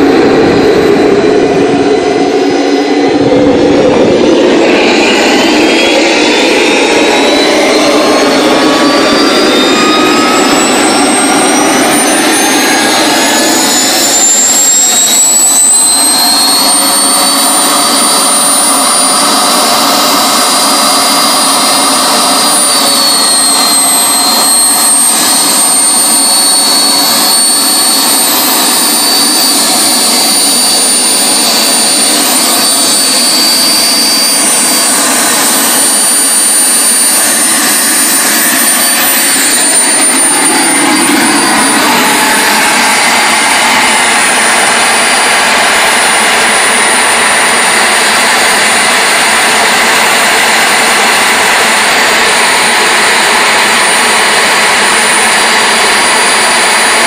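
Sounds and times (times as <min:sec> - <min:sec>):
jet engine idling: 0:00.0 - 0:57.0.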